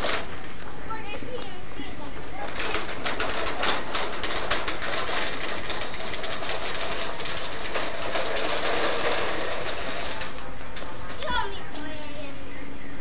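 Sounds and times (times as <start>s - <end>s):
plastic push toy rattling on grass: 2.4s - 11.9s.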